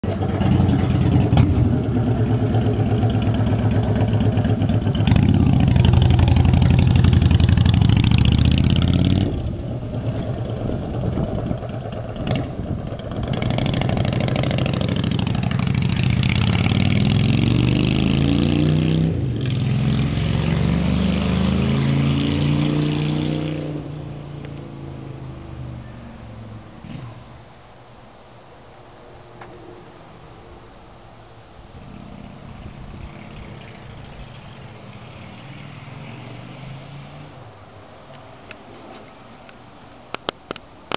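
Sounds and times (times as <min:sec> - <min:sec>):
motorcycle revving and accelerating: 0:00.0 - 0:25.6, 0:31.8 - 0:37.4.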